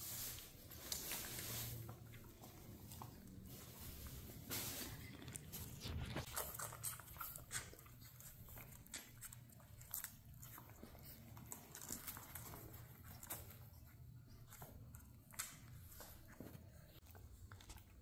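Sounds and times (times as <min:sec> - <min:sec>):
puppies suckling: 0:04.9 - 0:18.0.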